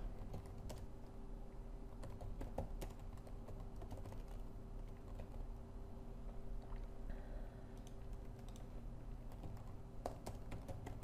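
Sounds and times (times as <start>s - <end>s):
computer keyboard typing: 0.0s - 0.9s, 1.9s - 5.5s, 7.8s - 11.0s.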